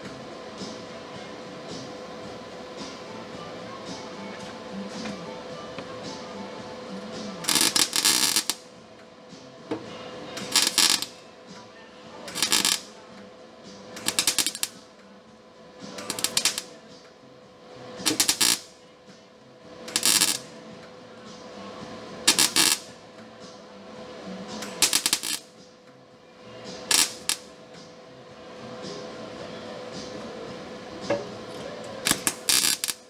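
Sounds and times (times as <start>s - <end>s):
welder crackling bursts: 7.2s - 8.7s, 10.4s - 11.2s, 12.3s - 13.0s, 14.0s - 14.8s, 15.9s - 16.8s, 18.0s - 18.8s, 19.8s - 20.5s, 22.2s - 23.0s, 24.5s - 25.6s, 26.8s - 27.6s, 31.3s - 33.0s.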